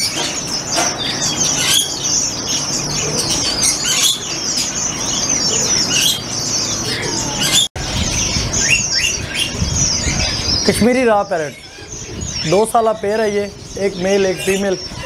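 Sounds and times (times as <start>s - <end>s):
birds chirping and twittering: 0.0s - 15.0s.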